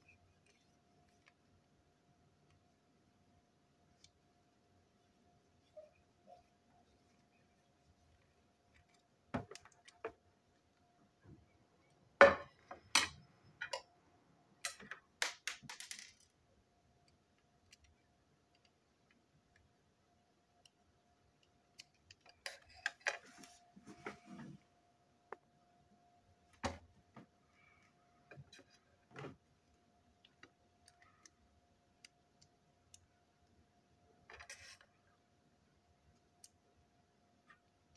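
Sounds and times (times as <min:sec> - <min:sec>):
faint steady hum: 0:00.0 - 0:37.9
plastic parts clicking on tabletop: 0:14.6 - 0:16.3.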